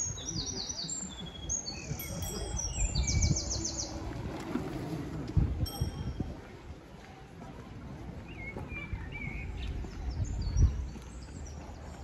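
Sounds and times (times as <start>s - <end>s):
songbirds chirping and trilling: 0.0s - 4.9s, 7.9s - 12.0s.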